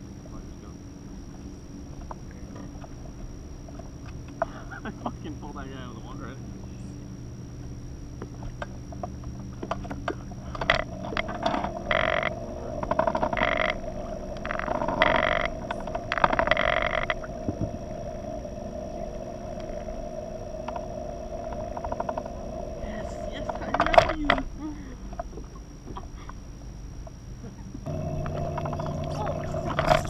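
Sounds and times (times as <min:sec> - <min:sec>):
fishing reel cranking whir: 0:09.9 - 0:24.7, 0:27.9 - 0:30.0.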